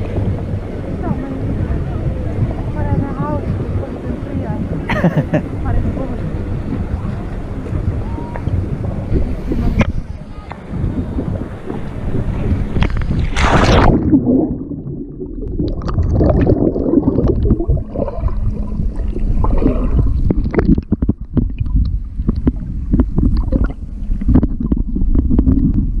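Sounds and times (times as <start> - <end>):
underwater gurgling and bubbling: 0.0 - 4.9, 5.6 - 26.0
underwater knocks and pops: 12.7 - 26.0
splash into water: 12.9 - 14.6.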